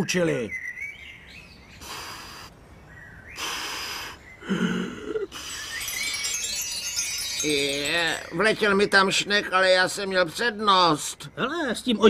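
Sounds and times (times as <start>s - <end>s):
forceful breaths blown out: 1.8s - 2.5s, 3.3s - 6.2s.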